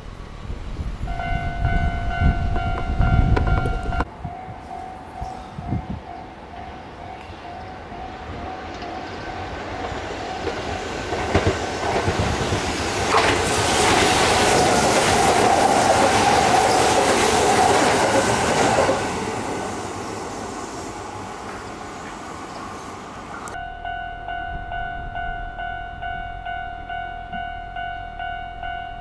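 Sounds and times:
train passing with whine: 0.0s - 29.0s
wheels clattering over rail joints: 8.5s - 19.4s.

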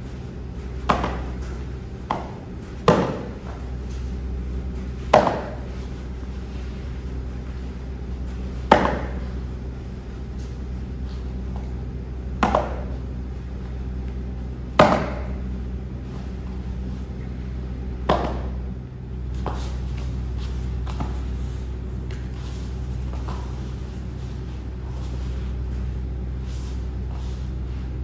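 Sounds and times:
low steady hum: 0.0s - 28.0s
bodies slapping on foam mats: 0.7s - 3.8s, 5.0s - 6.2s, 8.4s - 9.5s, 11.2s - 13.0s, 14.0s - 15.4s, 18.0s - 26.0s.

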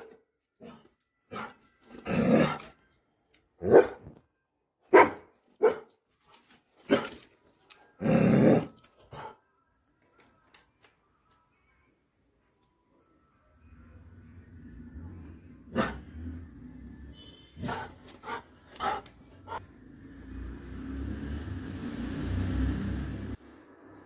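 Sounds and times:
dog barking: 0.0s - 1.6s, 3.6s - 4.2s, 4.9s - 6.0s, 15.7s - 16.1s, 17.6s - 19.6s.

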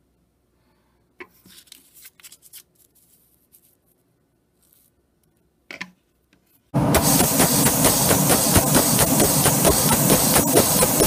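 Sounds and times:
paper rustling: 1.3s - 4.0s.

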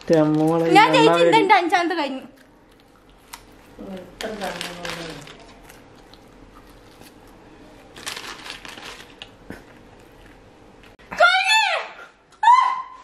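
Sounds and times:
paper rustling: 4.2s - 5.8s, 7.9s - 9.3s.

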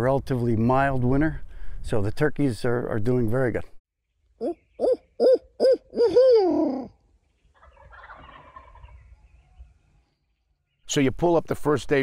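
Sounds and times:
owl hooting: 4.4s - 7.0s
wild turkeys gobbling: 4.4s - 9.8s.

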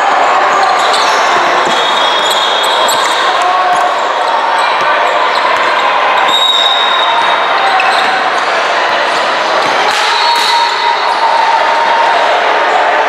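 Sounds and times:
basketball bouncing on court: 7.1s - 10.5s.

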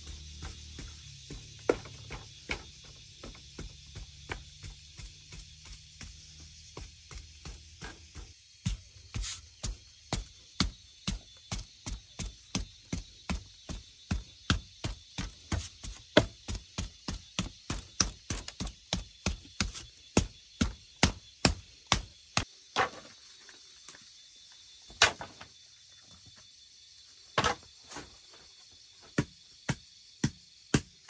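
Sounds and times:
wooden pole ramming earth: 0.0s - 5.4s, 15.8s - 16.6s, 24.9s - 25.5s, 27.4s - 27.7s
wooden paddle beating mud: 0.0s - 22.1s.

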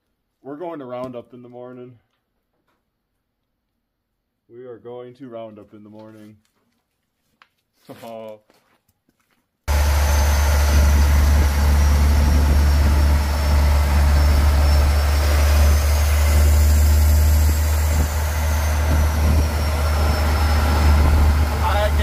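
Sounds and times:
diesel engine low drone: 9.7s - 22.0s
road and wind noise: 9.7s - 22.0s.

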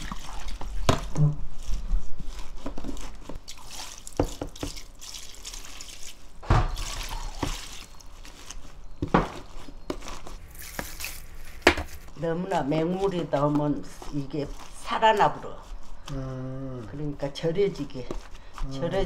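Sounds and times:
water pouring and splashing: 0.0s - 8.6s.

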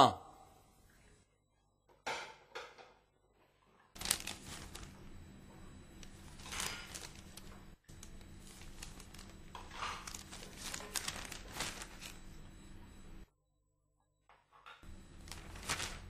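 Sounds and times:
newspaper rustling: 4.0s - 5.1s, 6.0s - 12.4s, 15.2s - 16.0s.

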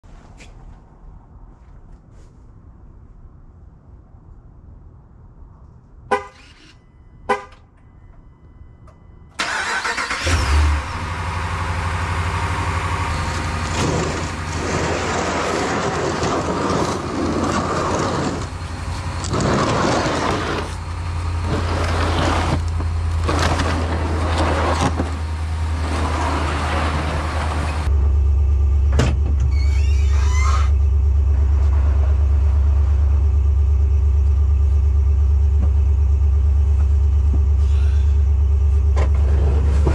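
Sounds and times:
vehicle engine droning: 6.1s - 39.9s
loud shifting noise: 9.4s - 28.2s.

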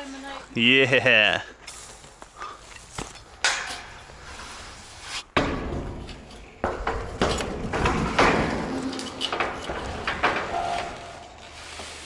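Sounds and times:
metal roofing panel knocking: 5.4s - 10.6s.

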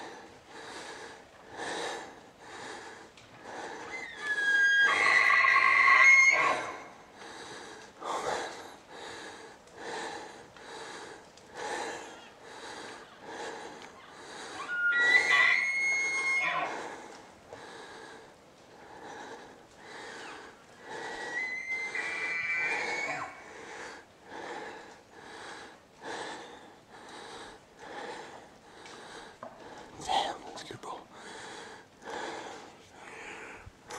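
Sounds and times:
heavy breathing: 0.0s - 4.0s, 7.1s - 14.7s, 16.7s - 33.9s
elk bugling: 14.6s - 16.8s, 21.2s - 23.4s.

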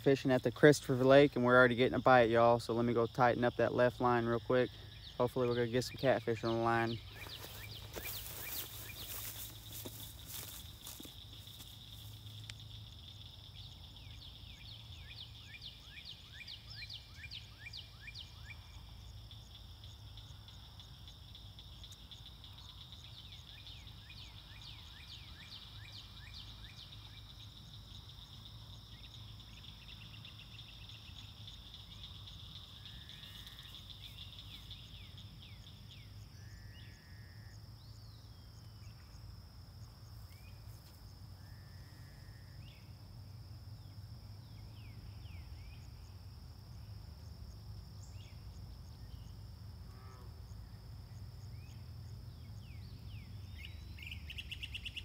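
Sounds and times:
fast pulsing insect trill: 0.0s - 39.0s
high-pitched insect drone: 6.0s - 13.6s.

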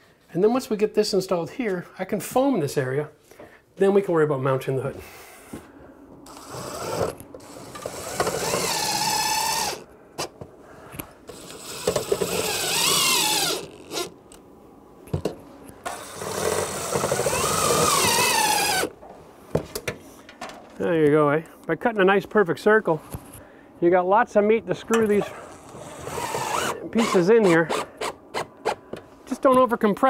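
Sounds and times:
cordless drill driving screws: 6.3s - 9.8s, 11.3s - 14.2s, 15.9s - 18.9s, 25.5s - 28.8s.

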